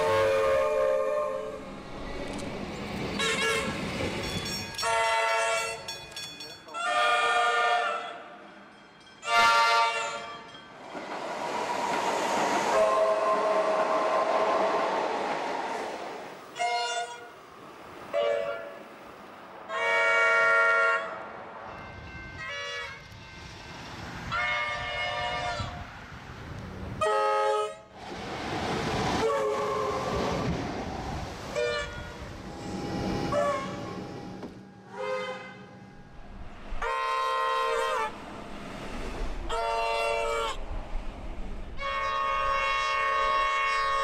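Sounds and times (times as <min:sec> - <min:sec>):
train horn toots and blasts: 0:00.0 - 0:01.7, 0:03.2 - 0:03.8, 0:04.8 - 0:05.9, 0:06.7 - 0:08.4, 0:09.2 - 0:10.5, 0:12.7 - 0:14.9, 0:16.6 - 0:17.3, 0:18.1 - 0:18.8, 0:19.7 - 0:21.2, 0:21.8 - 0:23.2, 0:24.3 - 0:25.9, 0:27.0 - 0:27.9, 0:29.2 - 0:30.3, 0:31.5 - 0:34.2, 0:34.8 - 0:36.0, 0:36.8 - 0:38.2, 0:39.5 - 0:40.6, 0:41.8 - 0:44.0
train running noise: 0:00.0 - 0:44.0.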